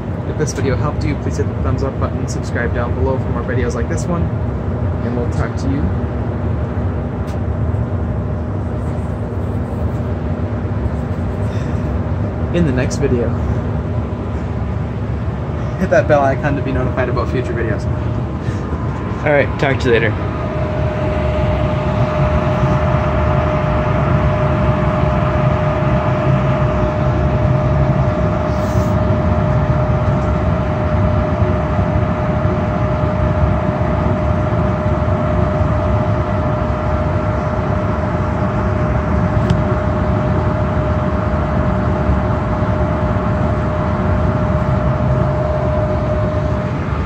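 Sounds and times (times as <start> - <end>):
blower whine: 0.0 - 47.0
furnace rushing hum: 0.0 - 47.0.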